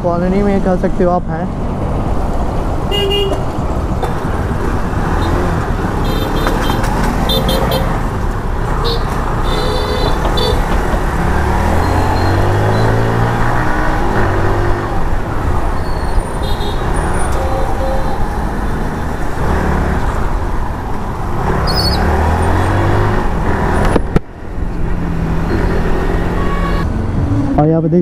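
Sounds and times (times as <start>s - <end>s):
motorcycle engine revving: 8.9s - 15.2s.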